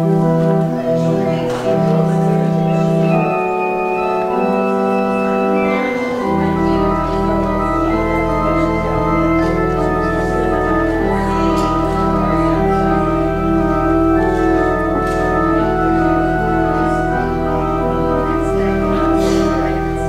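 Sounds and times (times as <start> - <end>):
deep organ pedal bass note: 0.0 - 20.0
pipe organ chords: 0.0 - 20.0.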